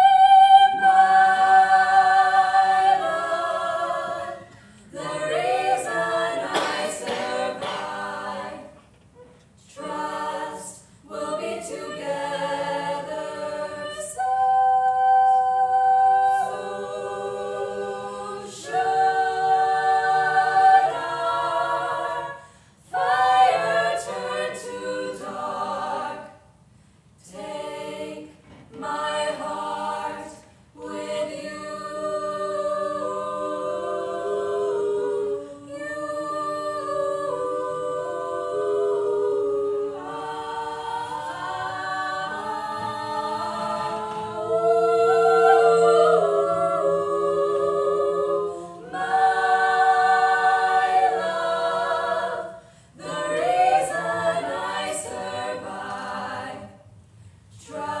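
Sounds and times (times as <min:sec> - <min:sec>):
women singing in harmony: 0:00.0 - 0:26.5, 0:27.2 - 0:56.9, 0:57.5 - 0:58.0.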